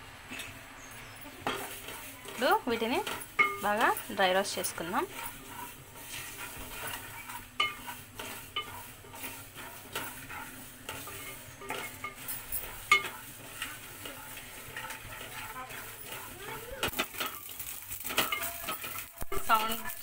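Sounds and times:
seeds crackling and popping: 0:00.3 - 0:20.0
spatula scraping and stirring seeds: 0:00.3 - 0:20.0.

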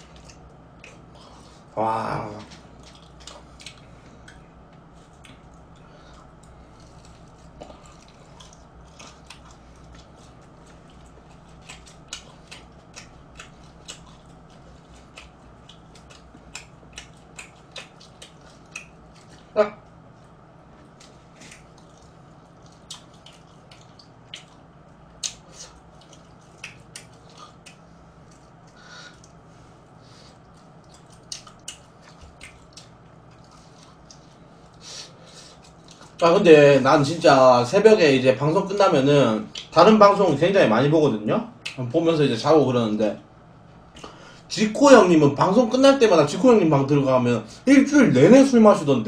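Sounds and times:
crunching fried chicken: 0:05.0 - 0:29.5.

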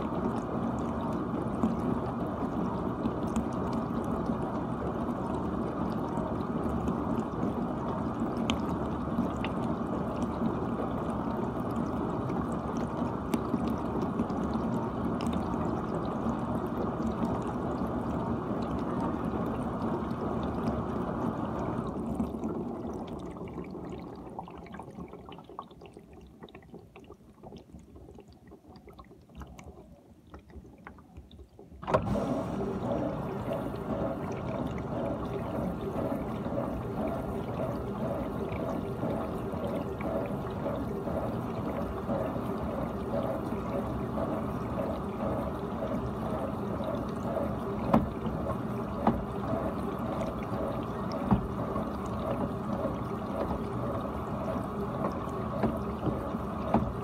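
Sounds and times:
dishwasher water spraying: 0:31.8 - 0:57.0
water trickling and dripping: 0:32.6 - 0:57.0.

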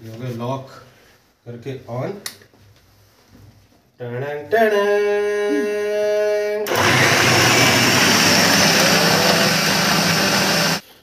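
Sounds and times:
food processor motor whining: 0:06.7 - 0:10.8.

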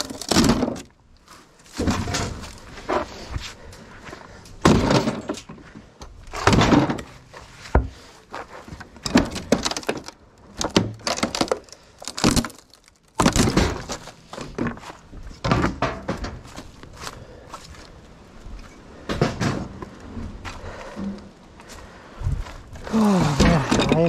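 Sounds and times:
junk crashing and clattering: 0:00.0 - 0:01.0, 0:01.7 - 0:03.0, 0:04.5 - 0:07.9, 0:09.0 - 0:16.8, 0:19.0 - 0:20.1, 0:23.2 - 0:24.0.

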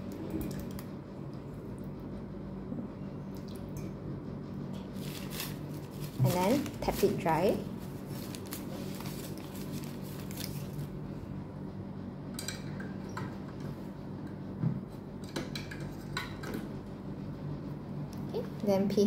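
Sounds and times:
tissue paper rustling: 0:05.0 - 0:10.9.

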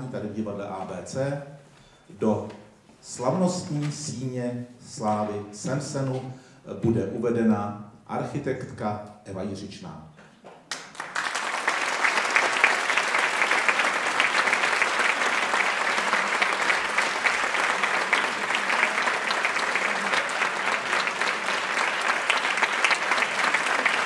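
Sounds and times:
audience applauding: 0:10.7 - 0:24.0.

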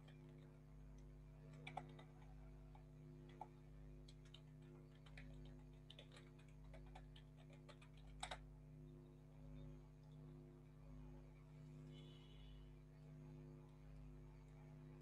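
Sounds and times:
keyboard typing: 0:00.0 - 0:08.4
steady low hum: 0:00.0 - 0:15.0.

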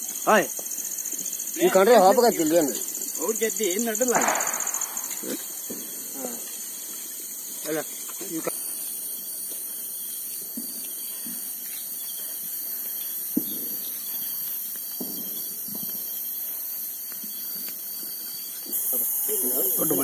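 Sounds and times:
night insects chirring: 0:00.0 - 0:20.0
sharp click: 0:04.2 - 0:05.5
footsteps rustling through tall grass: 0:05.0 - 0:18.7.

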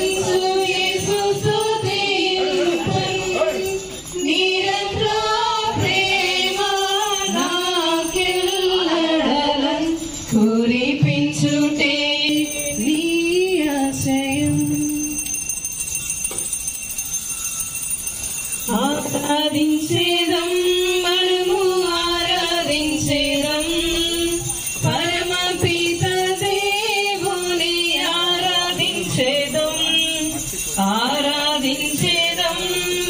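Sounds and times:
hand bells jingling: 0:00.0 - 0:33.0
woman singing a hymn: 0:04.2 - 0:15.2, 0:18.7 - 0:30.2, 0:30.8 - 0:33.0.

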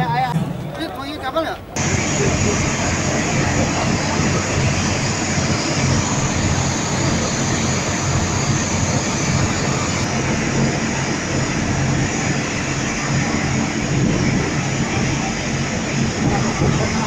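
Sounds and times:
boat engine humming: 0:00.0 - 0:17.0
water rushing: 0:00.0 - 0:17.0.

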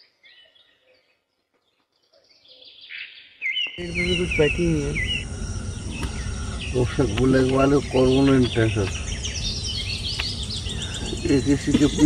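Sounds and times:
lapwing calling: 0:02.5 - 0:12.0
outdoor hiss and low rumble: 0:03.8 - 0:12.0.

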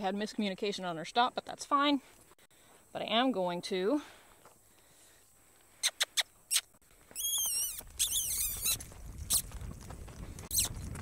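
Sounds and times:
hoofbeats in dirt: 0:04.0 - 0:11.0
squeaky kissing sounds: 0:05.8 - 0:09.4, 0:10.5 - 0:10.7.

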